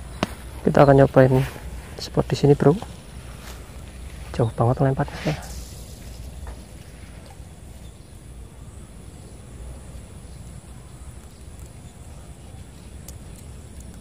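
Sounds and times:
faint high whine: 0.0s - 14.0s
low outdoor rumble: 0.0s - 14.0s
light ticks: 12.8s - 14.0s.

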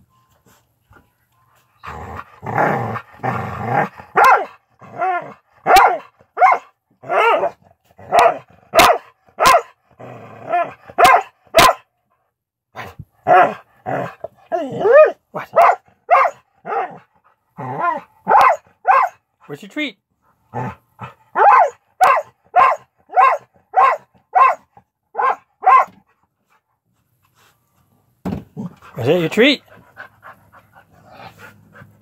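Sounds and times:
dog growling: 1.8s - 4.2s, 4.8s - 5.4s, 9.9s - 10.9s, 17.6s - 18.1s, 20.5s - 21.2s
dog barking and yipping: 3.7s - 9.8s, 10.5s - 11.8s, 12.8s - 19.2s, 21.0s - 26.0s.

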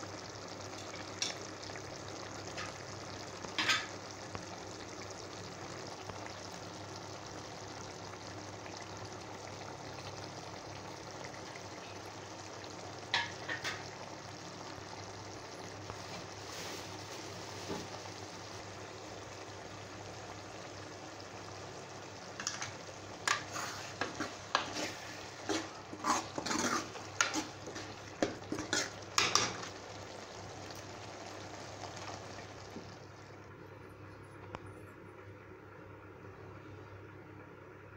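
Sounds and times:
gravy sizzling in a pan: 0.0s - 33.8s
spoon scraping a pan: 22.4s - 29.8s.

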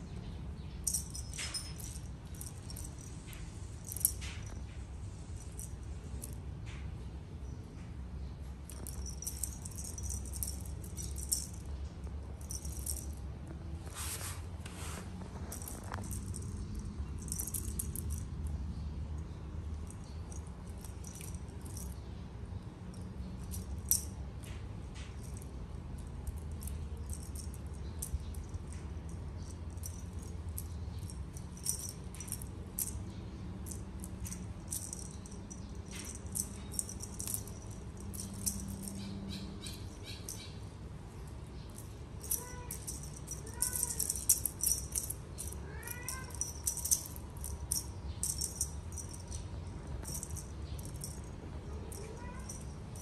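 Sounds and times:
steady low hum: 0.0s - 53.0s
rattling and clicking: 0.7s - 7.1s, 8.5s - 13.6s, 15.2s - 18.5s, 22.9s - 40.6s, 41.3s - 53.0s
cat meowing: 45.6s - 46.4s.

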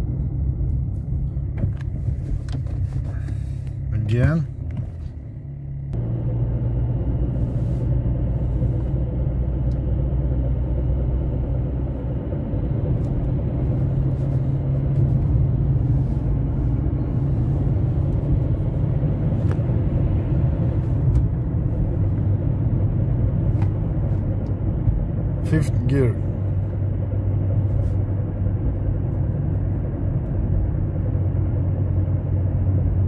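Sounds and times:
engine and road rumble: 0.0s - 33.0s.

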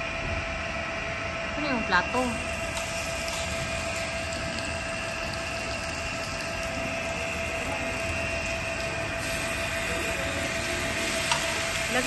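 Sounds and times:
mechanical hum and whirr: 0.0s - 12.0s.

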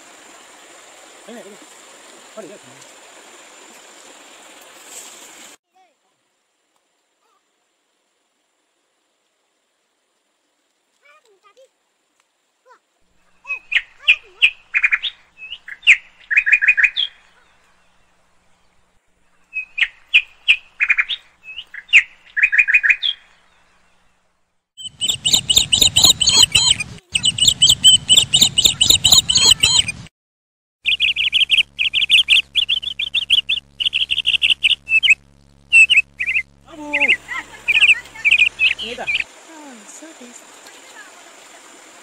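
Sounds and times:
birds chirping: 13.2s - 30.1s, 30.8s - 41.1s.

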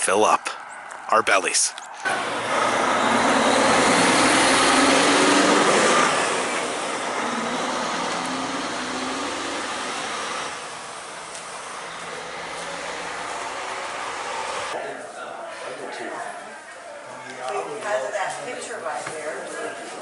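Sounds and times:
vehicle driving past: 2.0s - 14.8s.

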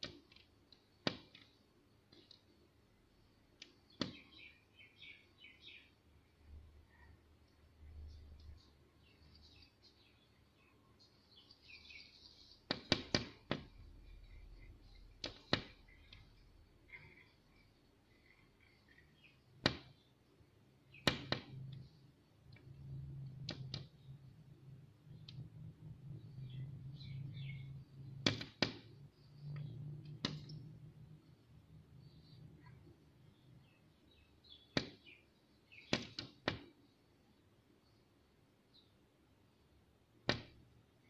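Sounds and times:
bird pecking at window glass: 11.3s - 20.1s, 22.5s - 24.1s, 26.5s - 30.8s.

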